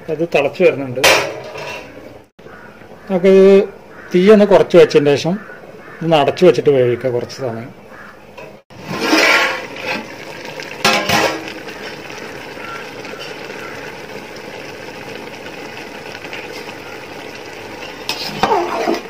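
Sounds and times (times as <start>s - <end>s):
metal pot lid clatter: 1.0s - 2.0s, 8.4s - 10.1s, 10.8s - 11.6s, 17.9s - 19.0s
water boiling with bubbling hiss: 8.7s - 19.0s.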